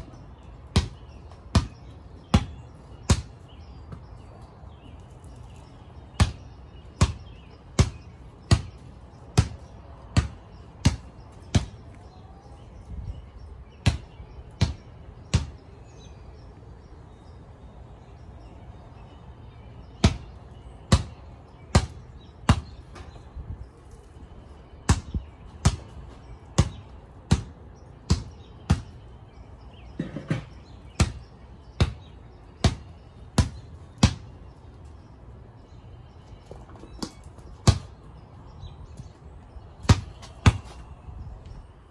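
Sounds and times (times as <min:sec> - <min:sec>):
basketball bouncing on concrete: 0:00.0 - 0:04.3, 0:06.0 - 0:12.0, 0:13.8 - 0:15.6, 0:20.0 - 0:20.3, 0:20.9 - 0:23.2, 0:24.9 - 0:29.0, 0:30.0 - 0:34.3, 0:36.5 - 0:38.1, 0:38.9 - 0:40.9.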